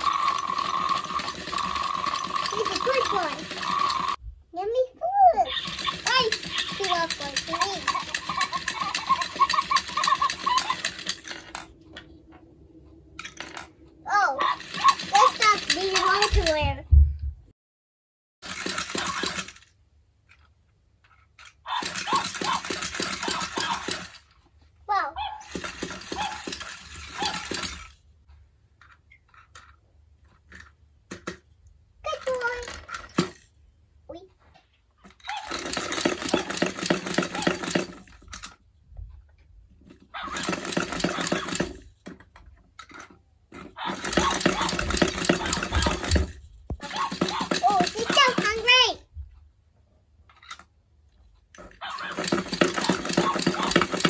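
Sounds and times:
toy motor rattling buzz: 0.0s - 4.2s, 5.5s - 11.7s, 14.4s - 16.7s, 18.4s - 19.7s, 21.7s - 24.3s, 25.4s - 28.0s, 32.1s - 33.4s, 35.2s - 38.6s, 40.2s - 41.8s, 43.6s - 48.8s, 51.7s - 54.0s.

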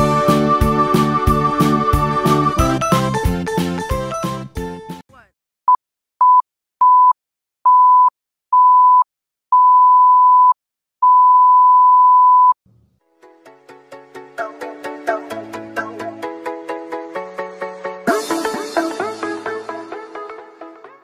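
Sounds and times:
music track: 0.0s - 5.0s, 13.0s - 21.0s.

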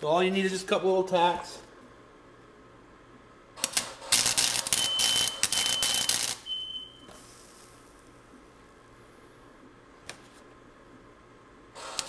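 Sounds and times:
welding arc crackling: 3.6s - 6.5s, 11.8s - 12.0s.

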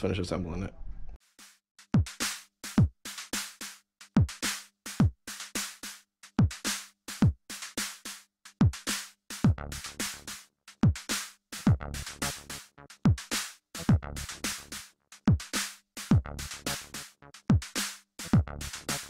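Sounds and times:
snare and hi-hat hits: 1.2s - 19.0s
deep kick drums: 13.8s - 14.3s, 16.1s - 16.5s, 18.4s - 18.8s.

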